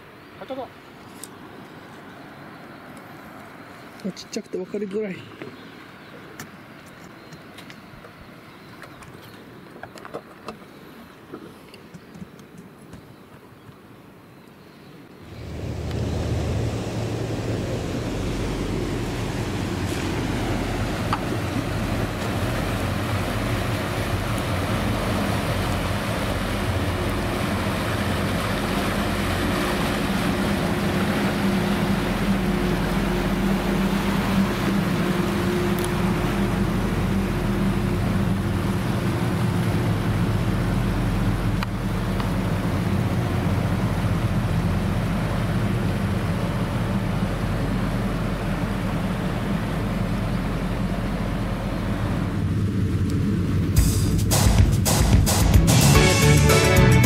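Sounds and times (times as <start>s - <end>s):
water rushing along hull: 0.0s - 57.0s
ferry engines humming: 15.0s - 57.0s.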